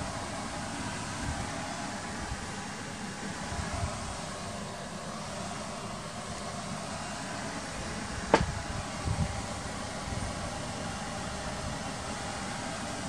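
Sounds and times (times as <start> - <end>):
steady background noise: 0.0 - 13.0
camera handling thumps: 8.3 - 8.5.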